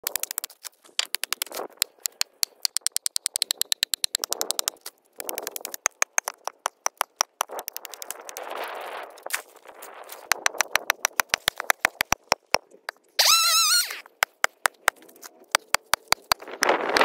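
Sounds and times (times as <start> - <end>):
ice crunching and scraping: 6.7 - 11.9.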